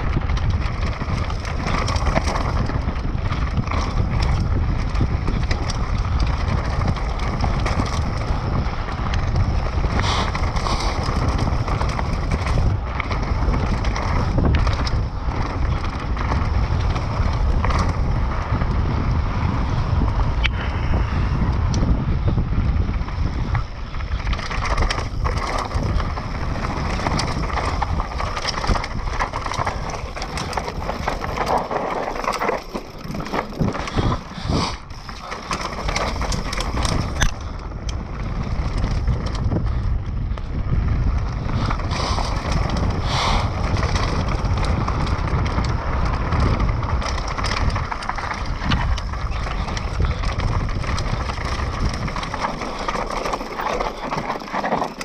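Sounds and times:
bike knocking and rattling: 0.0s - 55.0s
wind buffeting microphone: 0.0s - 55.0s
tyres crunching over dirt and stones: 24.1s - 39.2s, 41.5s - 55.0s.

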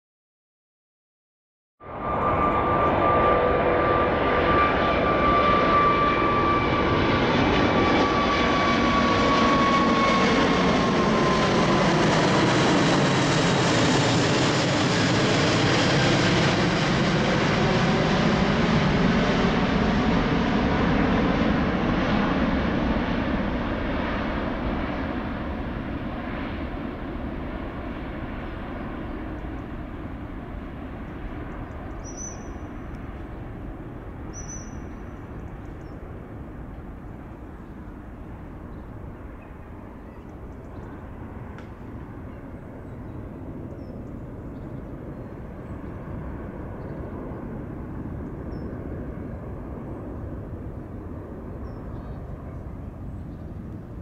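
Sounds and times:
jet airliner climbing: 2.0s - 23.2s.

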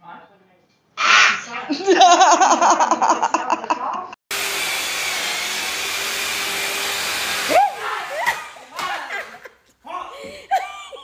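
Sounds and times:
person laughing hard: 1.7s - 4.1s, 7.5s - 11.0s
person crying out: 7.5s - 8.6s.

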